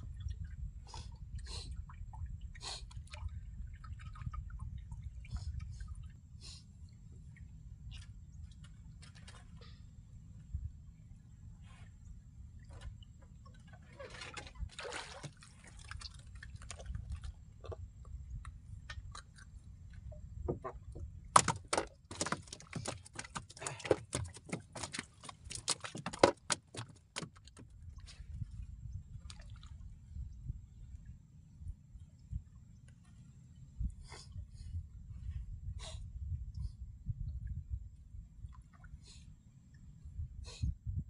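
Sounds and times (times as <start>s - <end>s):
low rumble of wind and water: 0.0s - 41.0s
knocks and rattles on wooden boat: 12.6s - 28.3s.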